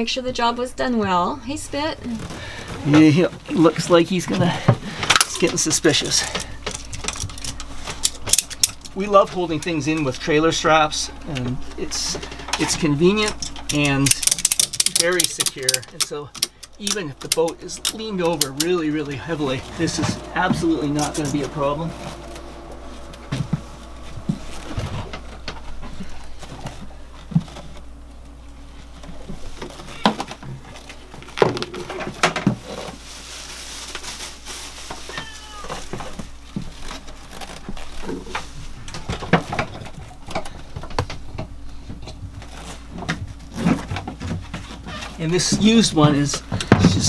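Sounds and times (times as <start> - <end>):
steady low hum: 0.0 - 35.1, 35.7 - 47.0
footsteps on floor: 22.2 - 27.5.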